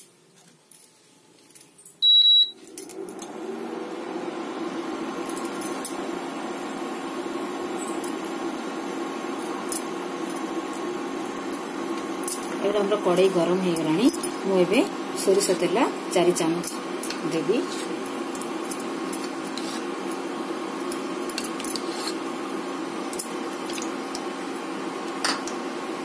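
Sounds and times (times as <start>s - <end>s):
cooling fan humming: 1.4s - 26.0s
short beep: 2.0s - 2.6s.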